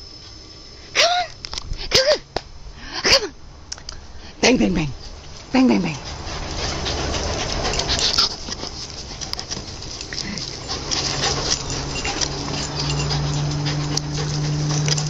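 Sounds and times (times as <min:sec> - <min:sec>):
steady low hum: 0:00.0 - 0:15.0
dog paws pattering: 0:05.1 - 0:15.0.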